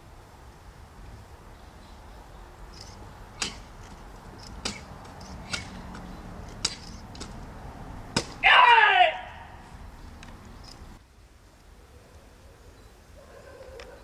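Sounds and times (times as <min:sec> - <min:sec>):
sword cutting target: 0:03.4 - 0:03.7, 0:04.6 - 0:05.9
person shouting: 0:08.4 - 0:09.6.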